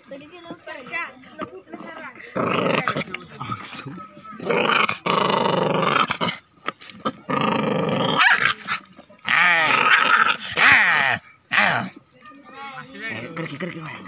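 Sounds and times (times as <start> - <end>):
puppy growling: 1.4 - 12.0.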